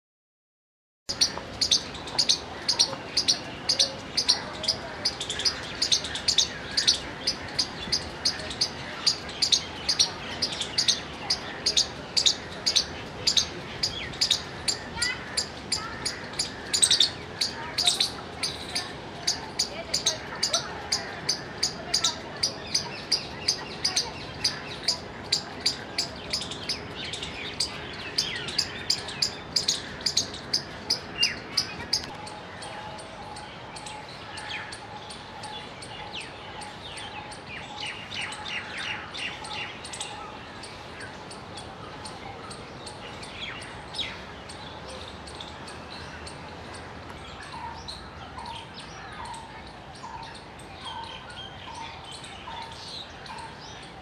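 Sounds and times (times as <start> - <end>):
squirrel chirping: 1.1 - 38.4
birds chirping: 1.1 - 54.0.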